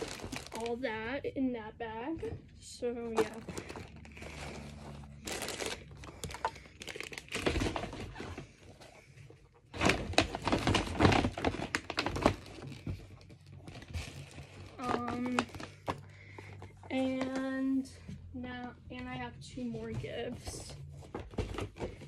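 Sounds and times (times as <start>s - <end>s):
gift packaging crinkling: 0.0s - 0.9s, 3.1s - 8.2s, 9.7s - 16.6s.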